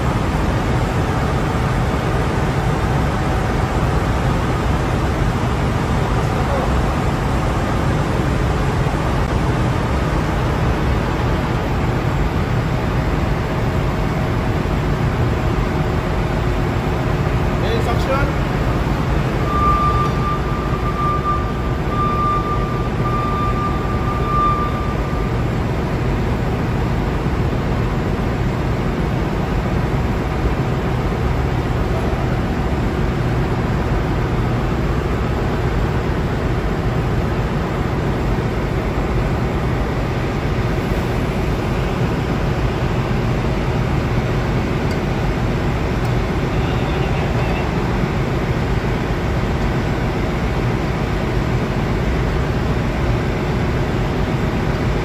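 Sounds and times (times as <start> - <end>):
engine room machinery drone: 0.0 - 55.0
thin high whistle: 19.4 - 25.3.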